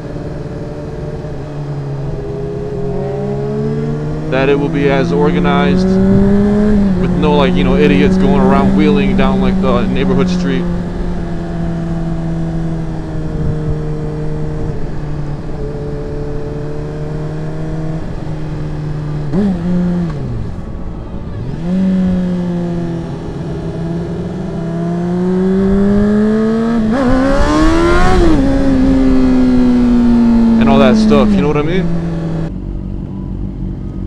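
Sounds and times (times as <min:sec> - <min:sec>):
wind rush: 0:00.0 - 0:10.0, 0:10.6 - 0:16.1, 0:25.3 - 0:32.5
motorcycle engine revving: 0:00.0 - 0:34.0.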